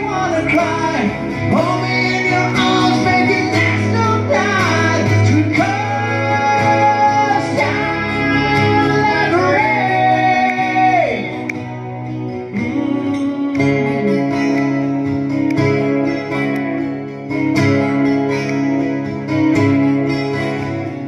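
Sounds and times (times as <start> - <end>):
person singing long notes: 0.0 - 11.6, 12.4 - 14.8
acoustic guitars playing: 0.0 - 21.0.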